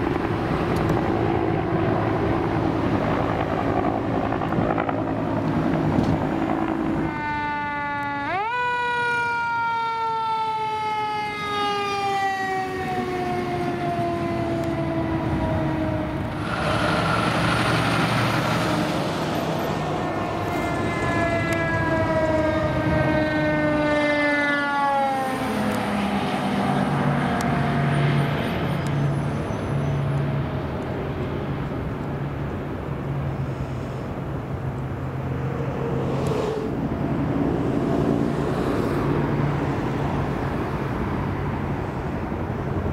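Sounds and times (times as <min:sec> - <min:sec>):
fire truck siren wailing: 0:00.0 - 0:31.3
diesel engines running: 0:00.0 - 0:42.9.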